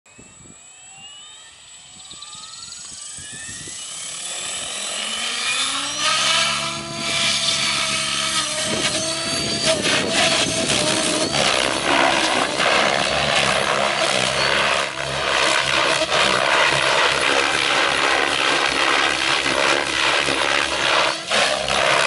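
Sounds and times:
electric motor and gear whine: 0.1 - 22.0
rotor blades whooshing: 0.6 - 22.0.

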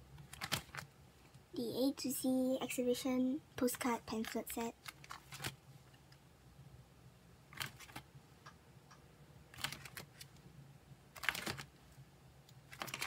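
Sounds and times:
plastic sleeve pages crinkling: 0.3 - 0.9, 4.0 - 5.6, 7.5 - 8.1, 9.5 - 10.4, 11.1 - 11.8, 12.6 - 13.0.

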